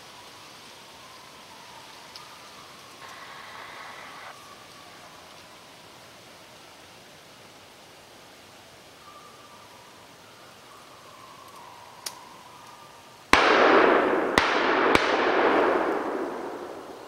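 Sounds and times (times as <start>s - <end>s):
gunshots: 13.4s - 17.0s
rolling echo: 13.4s - 17.0s.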